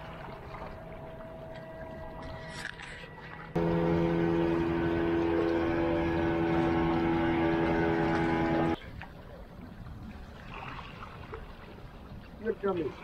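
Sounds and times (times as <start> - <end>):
motorboat engine running: 0.0 - 8.8.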